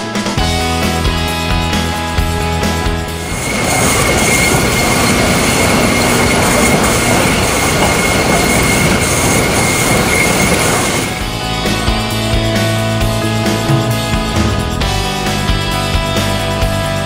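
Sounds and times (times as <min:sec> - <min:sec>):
machinery clatter and rumble: 0:00.6 - 0:17.0
steady high whine: 0:02.7 - 0:15.6.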